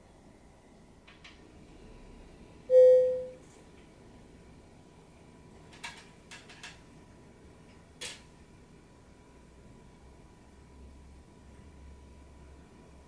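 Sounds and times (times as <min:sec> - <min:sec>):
clear chime note: 0:02.7 - 0:03.4.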